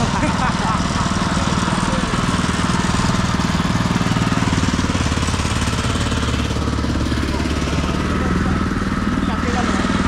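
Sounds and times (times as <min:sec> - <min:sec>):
small engine chugging: 0:00.0 - 0:10.0.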